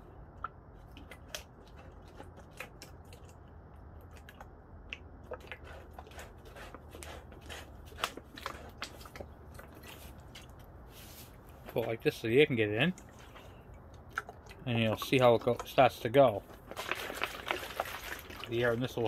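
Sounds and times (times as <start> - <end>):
low steady hum: 0.0 - 19.0
plastic bottles clicking and crackling: 13.0 - 19.0.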